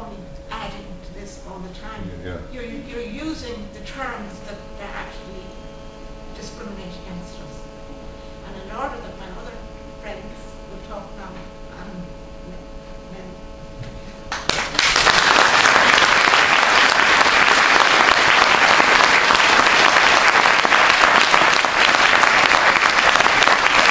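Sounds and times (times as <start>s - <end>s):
room hum: 0.0s - 23.9s
audience applauding: 14.3s - 23.9s.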